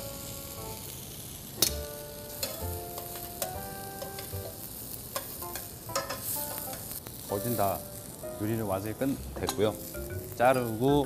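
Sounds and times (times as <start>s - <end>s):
food sizzling in a frying pan: 0.0s - 11.0s
metal tongs clinking on pan: 1.6s - 7.0s, 9.4s - 9.9s.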